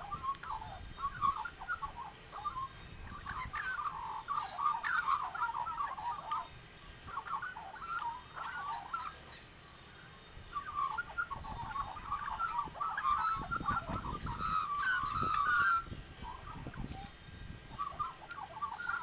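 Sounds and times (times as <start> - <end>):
magpies warbling song: 0.0 - 19.0.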